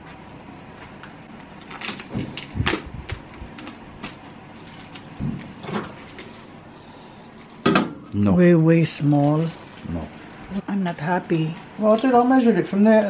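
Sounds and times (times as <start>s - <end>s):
wrapping rustling: 1.4s - 6.6s.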